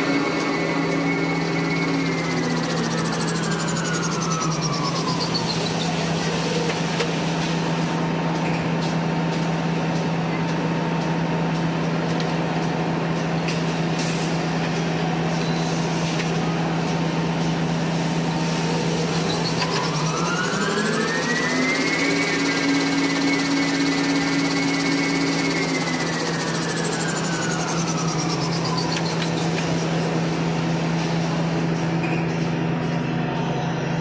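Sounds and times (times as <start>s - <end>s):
machine humming: 0.0s - 6.8s, 16.4s - 34.0s
machine drive whine: 0.0s - 34.0s.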